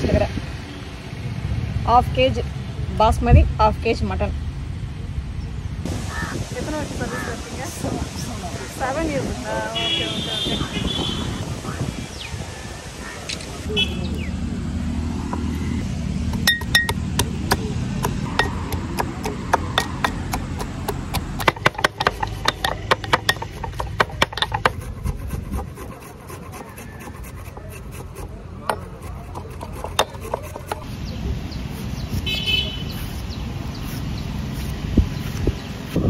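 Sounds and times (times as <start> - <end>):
garlic being pounded: 16.3 - 26.1.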